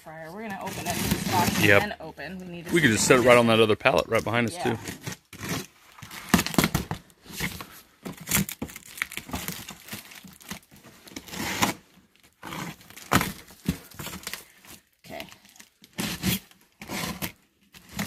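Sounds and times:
cardboard flaps crinkling and scraping: 0.4s - 2.0s
box cutter slicing tape: 4.7s - 6.8s, 11.2s - 11.8s, 15.9s - 18.0s.

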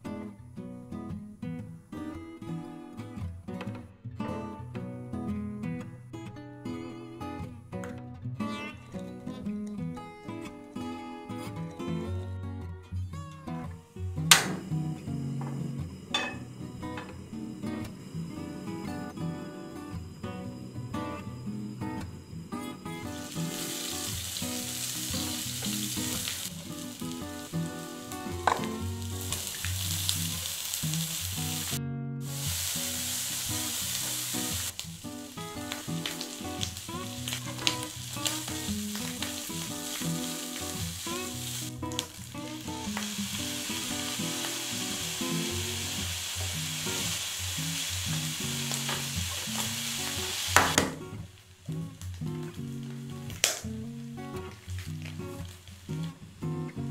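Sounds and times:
guitar background music: 0.0s - 56.9s
food sizzling in a frying pan: 13.9s - 56.9s.

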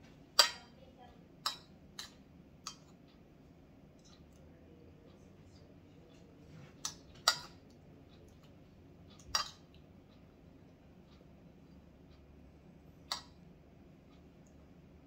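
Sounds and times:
cutlery clinking against dish: 6.8s - 7.6s, 9.2s - 9.7s.

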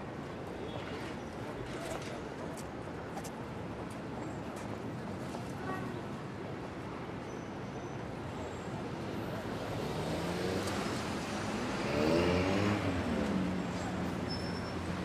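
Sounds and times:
street traffic noise: 0.0s - 15.0s
motor vehicle passing by: 9.6s - 15.0s.

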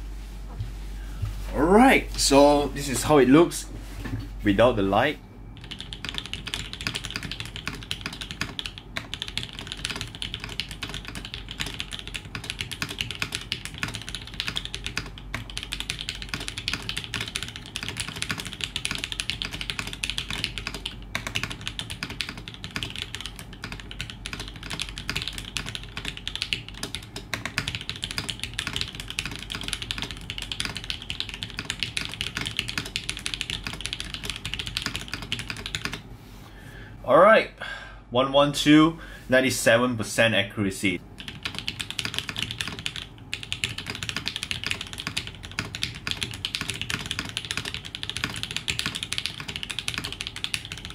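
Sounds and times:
fast typing on mechanical keyboard: 5.6s - 36.0s, 41.2s - 50.9s.

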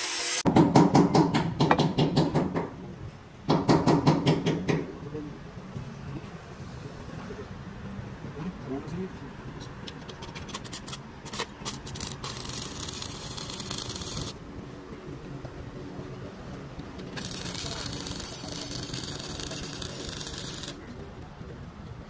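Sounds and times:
loud even hissing: 17.2s - 20.8s.

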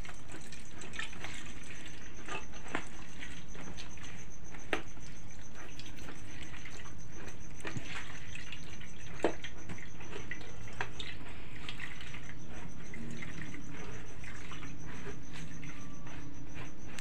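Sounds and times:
wet squelching of kneaded coconut: 0.0s - 17.0s.

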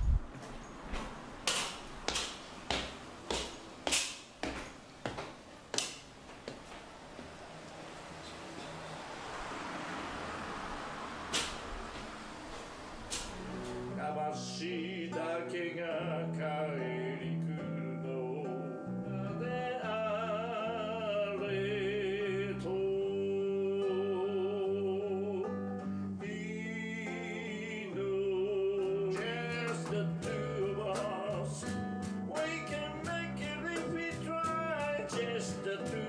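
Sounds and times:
acoustic guitar strumming: 11.2s - 36.0s
man singing into a microphone: 14.0s - 25.6s, 26.2s - 36.0s.

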